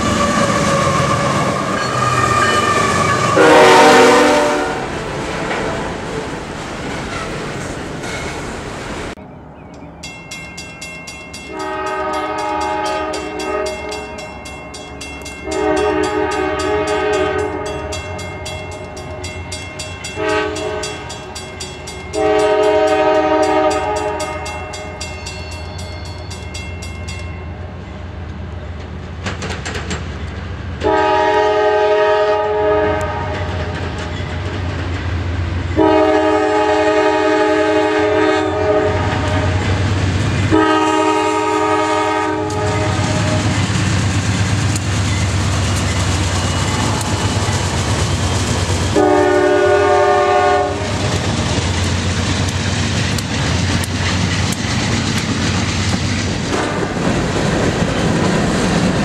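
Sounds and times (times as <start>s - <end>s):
locomotive air horn: 0.0s - 5.0s, 11.5s - 14.1s, 15.4s - 18.2s, 20.2s - 21.1s, 22.2s - 25.0s, 30.8s - 33.5s, 35.8s - 39.7s, 40.5s - 43.6s, 48.9s - 51.0s
crossing bell ringing: 1.7s - 2.8s, 9.7s - 28.1s, 40.7s - 51.0s.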